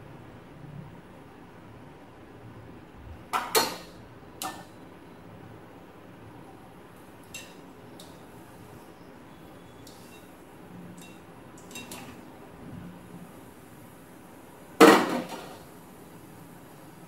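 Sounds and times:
strainer clinking against pan: 11.0 - 12.1.

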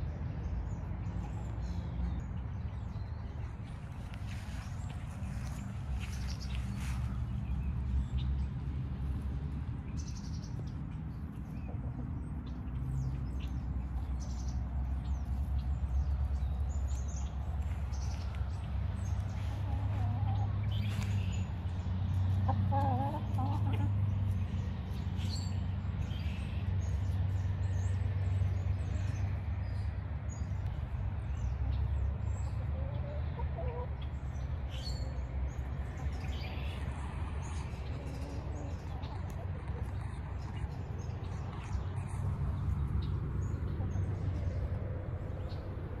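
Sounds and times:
hens clucking softly: 19.2 - 21.2, 22.1 - 24.4, 32.5 - 34.1.

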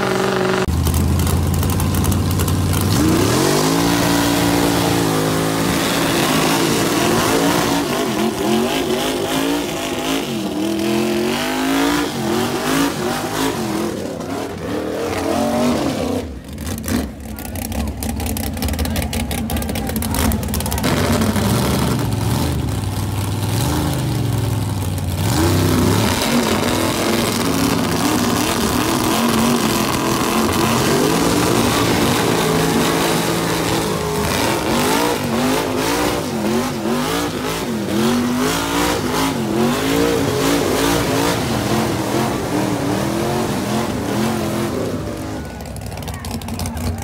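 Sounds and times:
mud tires spinning: 0.0 - 47.0
truck engines revving hard: 0.0 - 47.0.

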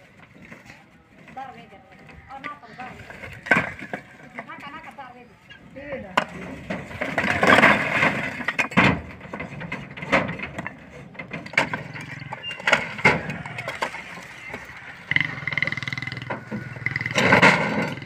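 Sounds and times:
bricks tumbling and clattering: 0.0 - 5.0, 6.0 - 18.0.

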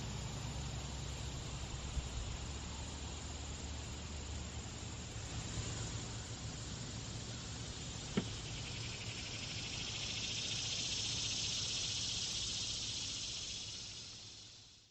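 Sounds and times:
insect chorus buzzing: 0.0 - 14.9.

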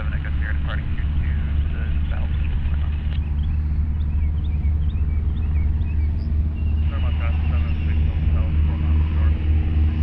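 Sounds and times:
propeller airplane droning: 0.0 - 10.0.

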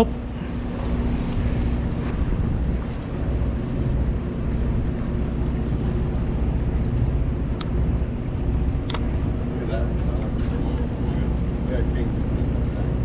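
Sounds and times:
boat engine rumbling: 0.0 - 13.0.

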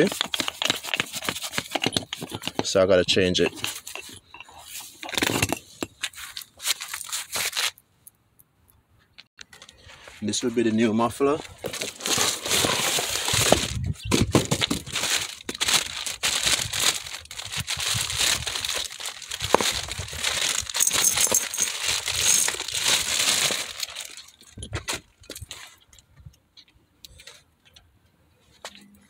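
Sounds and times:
plastic bag crinkling: 2.7 - 7.8, 11.2 - 24.6
cardboard box rustling: 11.5 - 24.2.

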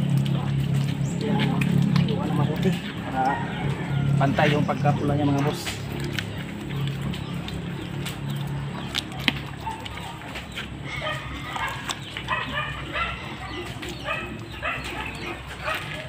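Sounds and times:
dog yipping and barking: 10.9 - 16.0.

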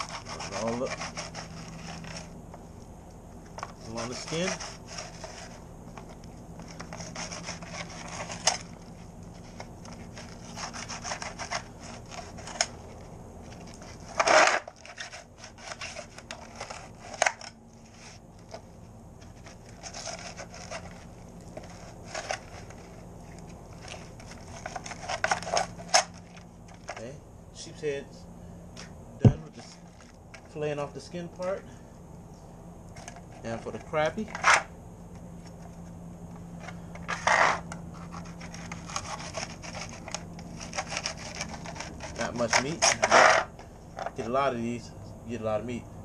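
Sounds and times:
knife scraping fish skin: 0.0 - 2.3, 3.8 - 5.6, 6.7 - 8.7, 9.4 - 12.7, 37.2 - 43.5.

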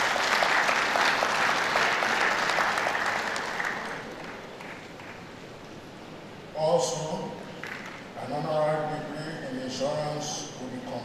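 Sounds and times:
audience applauding: 0.0 - 5.3.

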